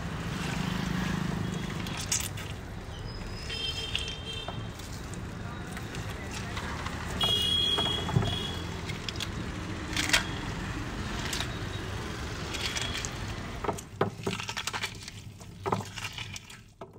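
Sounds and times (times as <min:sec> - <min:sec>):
traffic hum: 0:00.0 - 0:16.6.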